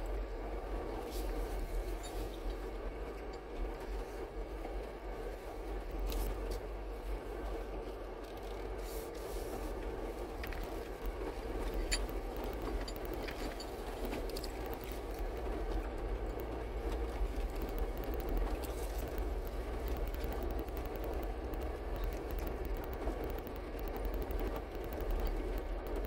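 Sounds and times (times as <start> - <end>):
vehicle engine and tyre drone: 0.0 - 26.0
stones clicking under tyres: 9.7 - 26.0.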